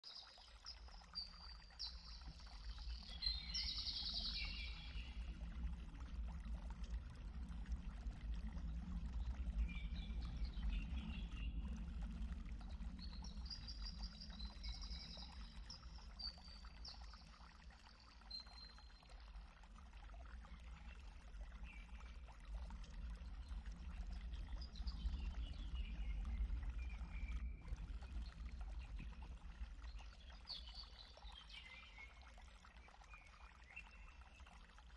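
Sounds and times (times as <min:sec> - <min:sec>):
running water: 0:00.0 - 0:34.9
songbird singing: 0:01.8 - 0:05.1.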